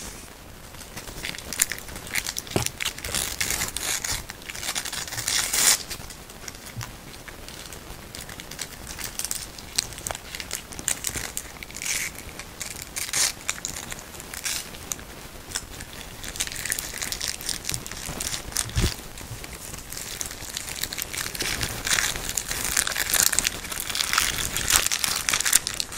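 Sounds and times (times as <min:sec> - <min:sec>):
plastic wrapper crinkling: 0:00.0 - 0:25.9
velcro ripping: 0:01.0 - 0:05.9, 0:15.6 - 0:25.9.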